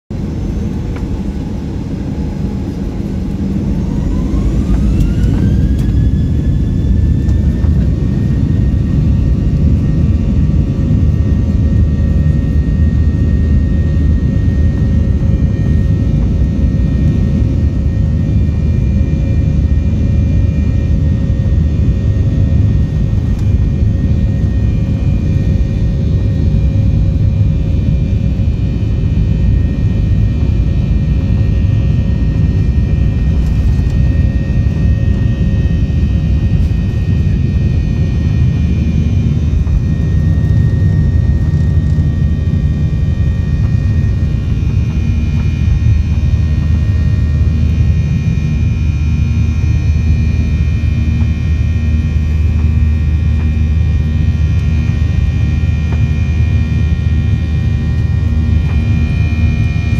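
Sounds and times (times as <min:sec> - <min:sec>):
takeoff roll rumble: 0:00.1 - 0:09.8
jet engines whining: 0:00.1 - 0:59.9.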